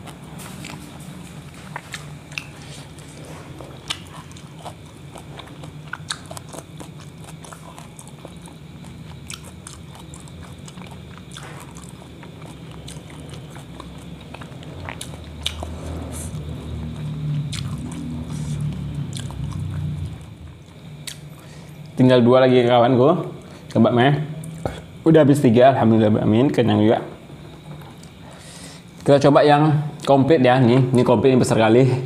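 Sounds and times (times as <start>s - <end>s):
close-up chewing: 0.0s - 22.0s
steady low hum: 0.0s - 32.0s
wet mouth clicks and smacks: 1.7s - 2.6s, 21.0s - 21.3s.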